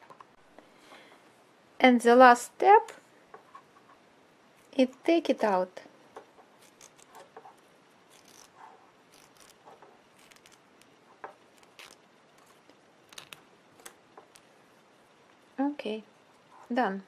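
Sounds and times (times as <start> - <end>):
tape pulled from fabric: 6.6 - 14.5.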